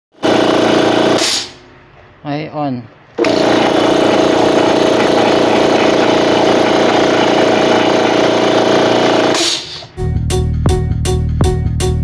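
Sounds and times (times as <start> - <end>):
air compressor running: 0.1 - 1.8, 3.2 - 10.0
hiss of air: 9.4 - 9.9.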